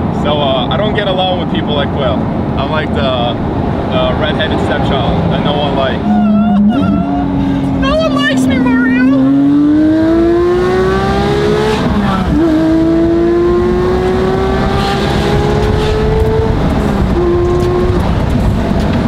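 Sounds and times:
car engine revving through gears: 3.4s - 19.0s.

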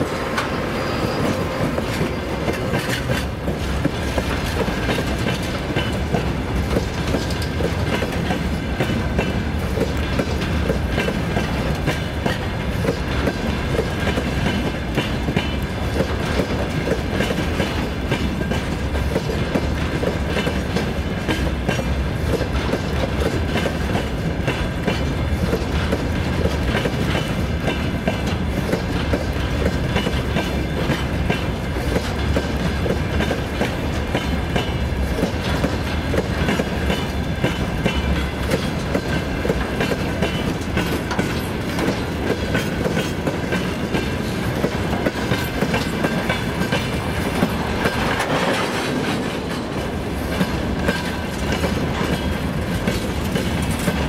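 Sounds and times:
freight wagons clattering over rails: 0.0s - 54.0s.

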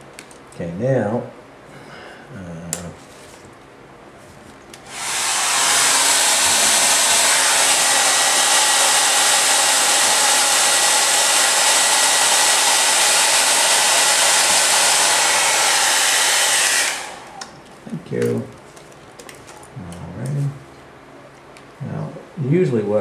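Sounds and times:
hair dryer blowing: 4.8s - 17.5s.

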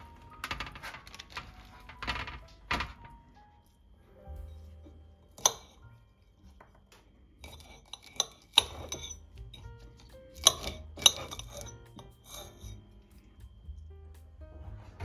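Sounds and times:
soft background piano music: 0.0s - 15.0s
utensils clinking against dishes: 4.5s - 13.3s.

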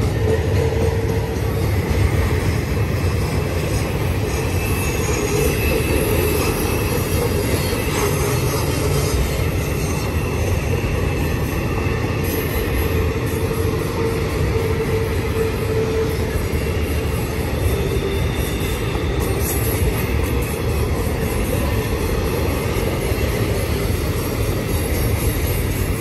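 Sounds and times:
train wheels rumbling on rails: 0.0s - 26.0s
wheel flanges squealing: 0.0s - 26.0s.

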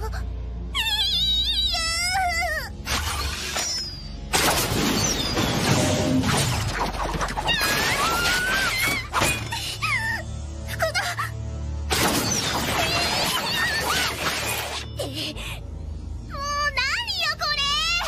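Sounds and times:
background music: 0.0s - 18.0s
crashing shattering bursts: 4.3s - 9.5s, 11.9s - 14.8s.

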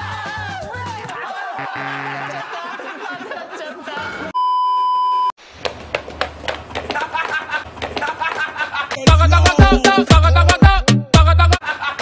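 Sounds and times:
music with heavy bass beat: 9.0s - 11.6s.

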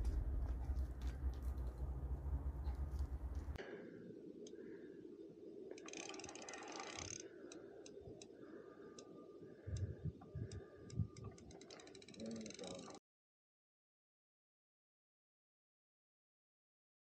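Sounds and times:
fishing reel clutch clicking: 5.7s - 8.3s, 11.1s - 13.0s.

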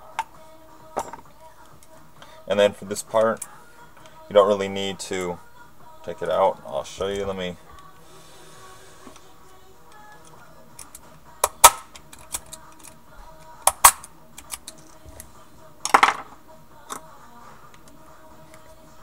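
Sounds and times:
screwdriver clicking on metal: 9.9s - 15.3s.

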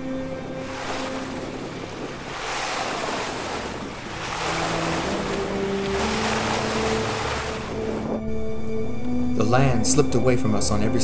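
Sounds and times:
wind buffeting microphone: 0.0s - 8.6s
bow wave splashing along hull: 0.0s - 9.0s.

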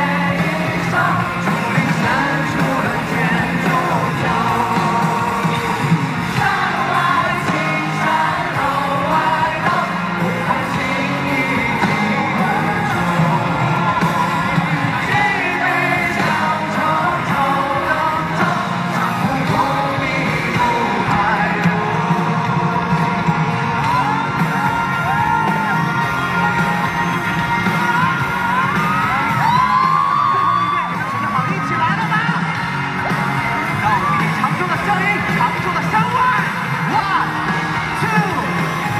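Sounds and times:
man singing into microphone: 0.0s - 24.3s
band accompaniment: 0.0s - 38.9s.

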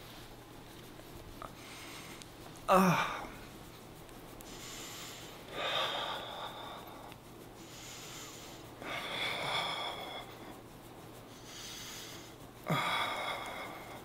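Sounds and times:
man inhaling quietly: 4.4s - 14.0s.

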